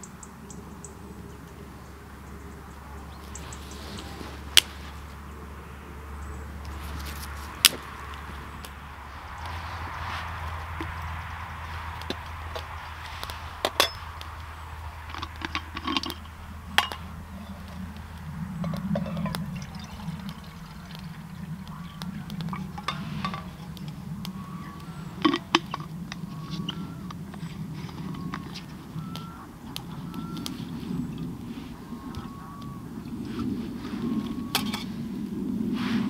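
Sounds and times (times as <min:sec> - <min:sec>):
metal cups clinking: 0:10.6 - 0:24.6
water pouring: 0:15.0 - 0:24.0.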